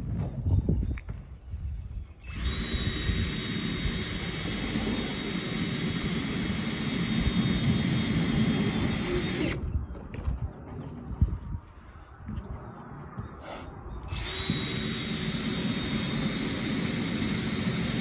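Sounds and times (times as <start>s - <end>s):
cordless drill running: 2.2s - 9.6s, 14.1s - 18.0s.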